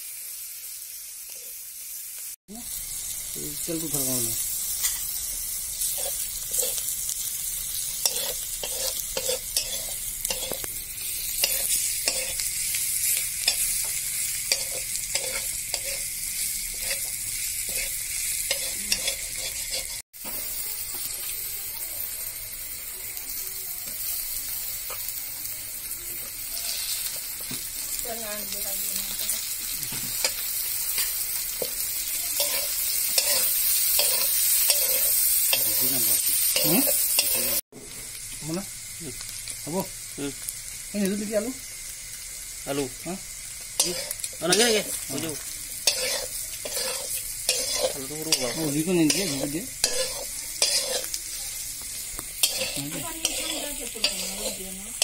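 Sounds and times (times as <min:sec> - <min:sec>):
meat sizzling in hot oil: 0:00.0 - 0:55.0
metal ladle scraping a wok: 0:05.8 - 0:06.9, 0:07.9 - 0:13.8, 0:14.5 - 0:16.1, 0:16.7 - 0:20.0, 0:26.5 - 0:27.2, 0:32.4 - 0:37.6, 0:43.8 - 0:45.0, 0:45.8 - 0:55.0.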